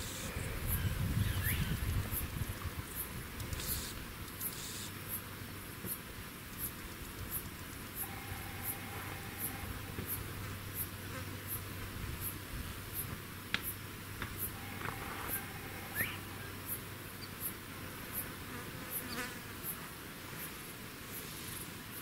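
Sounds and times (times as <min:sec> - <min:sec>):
insect chirping: 0:00.0 - 0:05.3, 0:06.6 - 0:18.2
outdoor hiss: 0:00.0 - 0:22.0.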